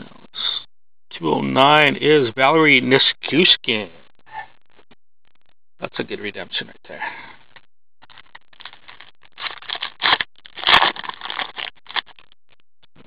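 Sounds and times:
foil pack tearing: 0:08.0 - 0:12.2
foil wrapper crinkling: 0:08.0 - 0:12.3.

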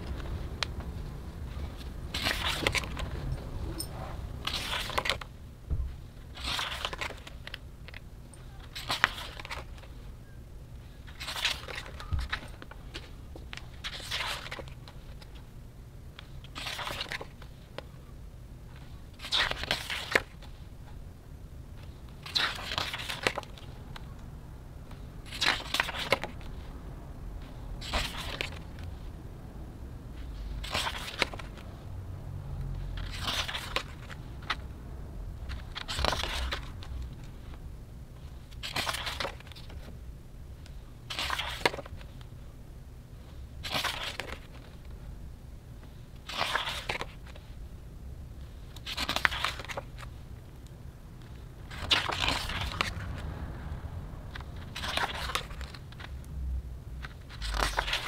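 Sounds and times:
book pages turning: 0:00.0 - 0:05.4, 0:06.1 - 0:10.0, 0:10.9 - 0:15.4, 0:16.2 - 0:17.9, 0:18.7 - 0:20.7, 0:21.8 - 0:24.1, 0:24.8 - 0:26.7, 0:27.4 - 0:29.1, 0:30.2 - 0:31.8, 0:32.7 - 0:34.7, 0:35.4 - 0:40.0, 0:40.6 - 0:42.3, 0:43.2 - 0:45.0, 0:45.8 - 0:47.6, 0:48.5 - 0:53.4, 0:54.3 - 0:56.3, 0:57.0 - 0:58.0.

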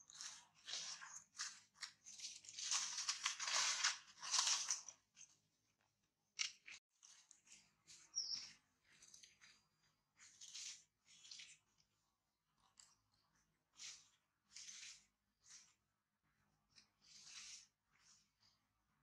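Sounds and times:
dry leaves rustling and crackling: 0:00.1 - 0:04.9.

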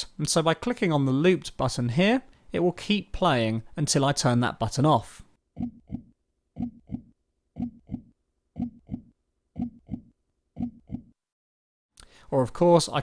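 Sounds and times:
heartbeat thumps: 0:05.6 - 0:11.1.

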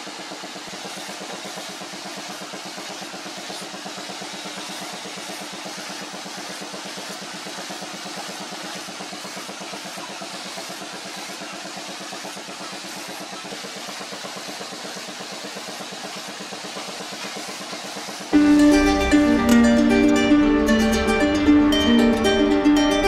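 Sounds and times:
plucked string music: 0:18.4 - 0:23.0.

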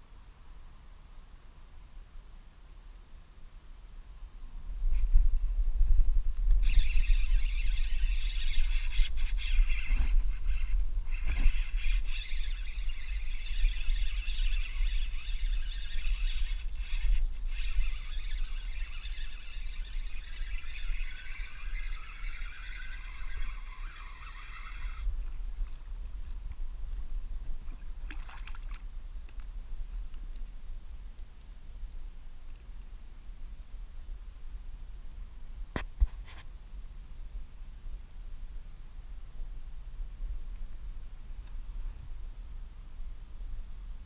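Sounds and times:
fishing reel whining: 0:06.5 - 0:25.1.

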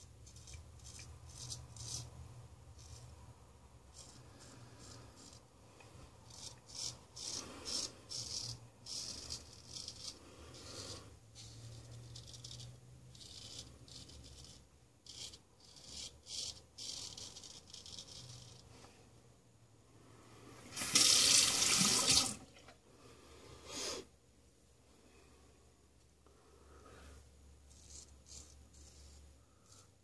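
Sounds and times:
razor scraping stubble: 0:00.0 - 0:03.2, 0:06.2 - 0:18.6, 0:27.6 - 0:30.0.

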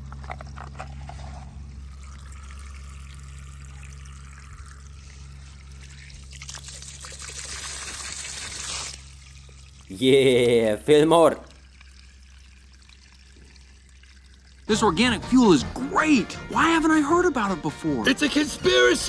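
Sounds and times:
low hum: 0:00.0 - 0:08.0
water trickling and pouring: 0:00.2 - 0:14.8.

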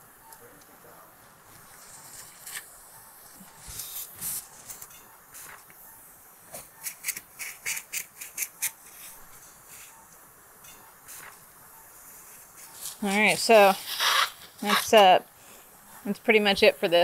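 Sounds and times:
suction tip hissing: 0:12.8 - 0:15.1.

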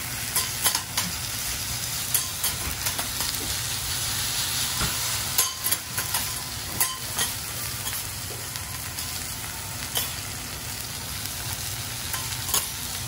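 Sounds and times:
food sizzling on griddle: 0:00.0 - 0:13.0
metal spatulas clacking and scraping: 0:00.4 - 0:01.2, 0:05.3 - 0:08.0, 0:10.0 - 0:10.2, 0:12.1 - 0:12.8.

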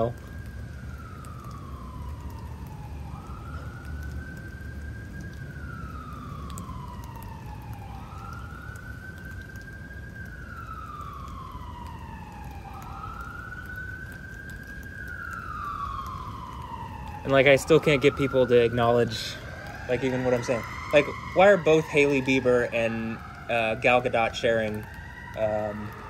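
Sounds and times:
emergency vehicle siren wailing: 0:00.0 - 0:26.0.

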